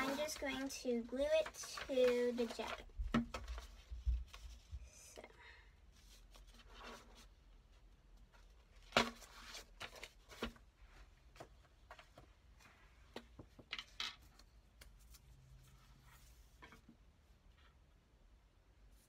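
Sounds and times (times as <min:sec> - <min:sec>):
paper rustling: 0:00.0 - 0:04.7.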